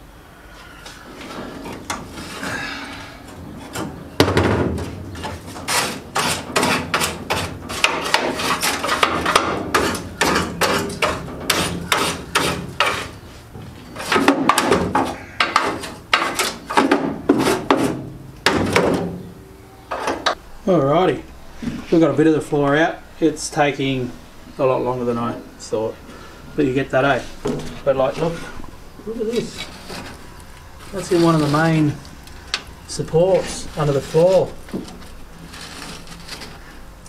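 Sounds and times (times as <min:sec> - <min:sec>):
rough metal scraping: 0:00.6 - 0:19.3, 0:24.6 - 0:37.0
sharp metallic knocks: 0:03.7 - 0:13.1.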